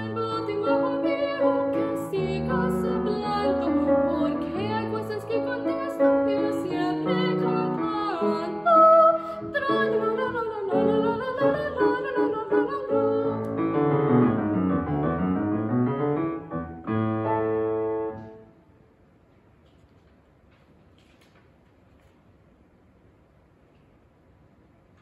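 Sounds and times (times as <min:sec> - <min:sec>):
woman singing classical: 0:00.0 - 0:13.9
grand piano playing: 0:00.0 - 0:18.6.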